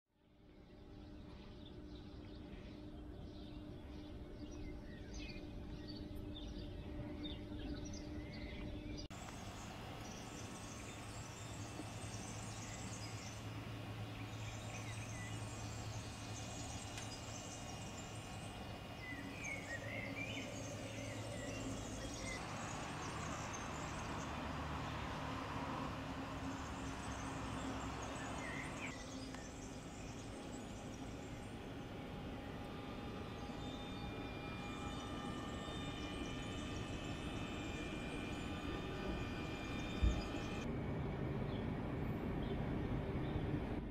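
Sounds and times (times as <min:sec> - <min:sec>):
low steady hum: 0:00.2 - 0:43.9
birds chirping: 0:00.5 - 0:40.7
insects trilling: 0:09.1 - 0:40.7.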